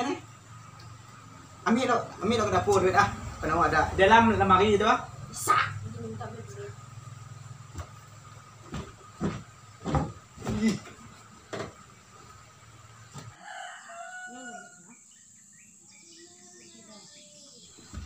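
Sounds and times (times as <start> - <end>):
sharp knocks and thumps: 7.7 - 11.9
rooster crowing: 13.3 - 15.1.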